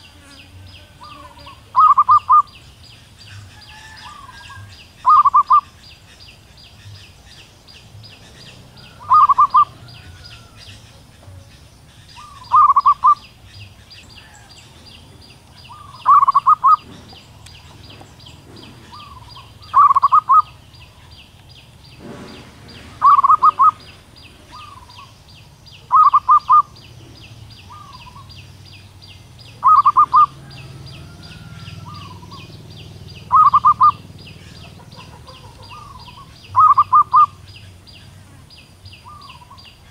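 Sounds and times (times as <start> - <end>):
dove calling: 0.0 - 39.9.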